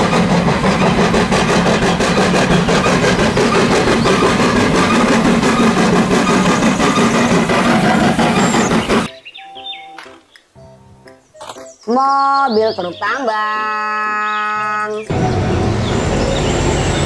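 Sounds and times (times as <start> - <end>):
steam locomotive chuffing: 0.0 - 9.1, 15.1 - 17.0.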